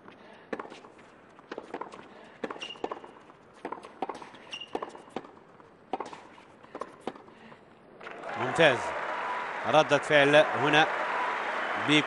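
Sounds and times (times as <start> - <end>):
shoes squeaking on court: 0.6 - 5.3
racket striking tennis ball: 1.5 - 7.2.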